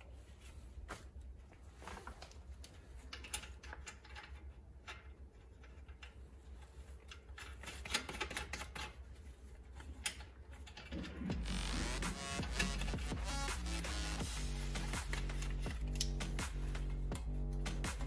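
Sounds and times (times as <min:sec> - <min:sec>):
hand tools clicking and tapping: 0:14.8 - 0:18.0.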